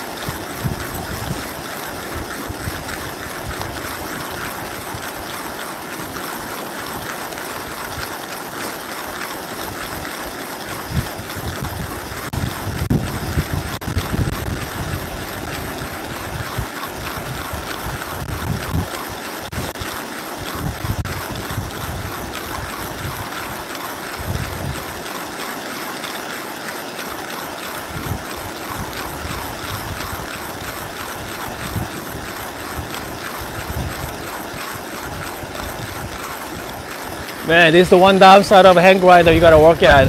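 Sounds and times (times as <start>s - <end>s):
wind buffeting microphone: 0.0s - 5.3s, 10.7s - 19.8s, 20.4s - 25.0s, 27.9s - 40.0s
hand coffee grinder crunching beans: 0.0s - 40.0s.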